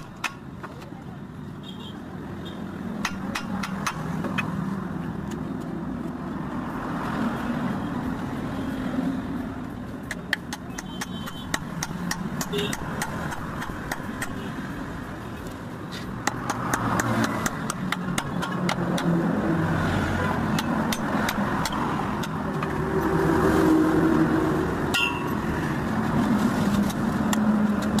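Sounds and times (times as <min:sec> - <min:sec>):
hammer on metal: 0:03.0 - 0:04.5, 0:10.1 - 0:14.4, 0:16.2 - 0:19.1, 0:20.4 - 0:22.4.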